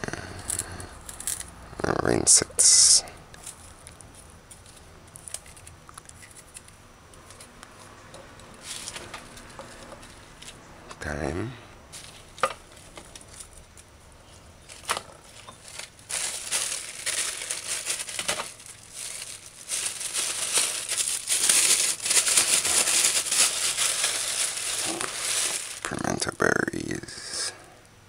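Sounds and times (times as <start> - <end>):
plastic bag crinkling: 12.0 - 13.9, 14.6 - 26.3.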